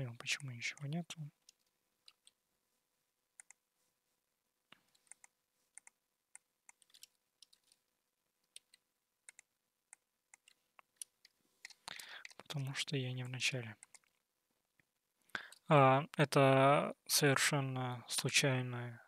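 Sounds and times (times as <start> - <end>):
computer mouse clicks: 0.8 - 2.4, 3.4 - 3.6, 4.7 - 7.8, 8.4 - 12.5, 13.8 - 14.2.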